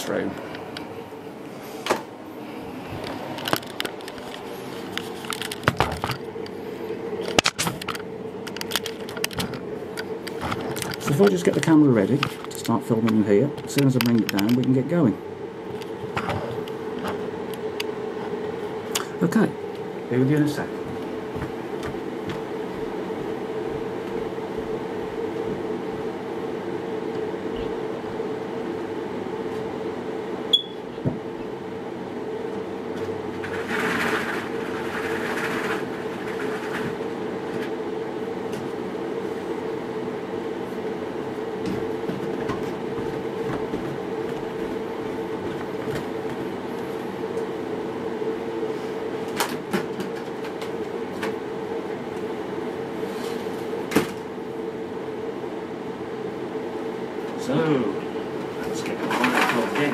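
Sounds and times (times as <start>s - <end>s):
steady mechanical hum: 0.0s - 59.9s.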